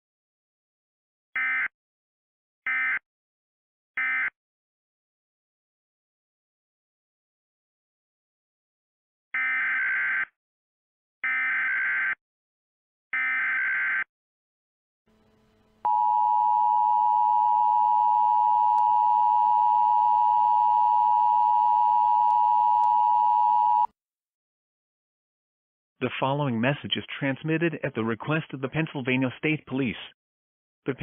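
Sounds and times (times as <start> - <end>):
two-tone alert signal: 15.9 - 23.9.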